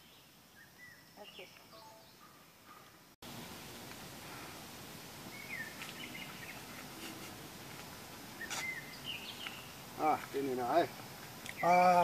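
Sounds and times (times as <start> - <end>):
steady background hiss: 0.0 - 12.0
high bird chirps: 5.3 - 6.8, 8.4 - 9.8.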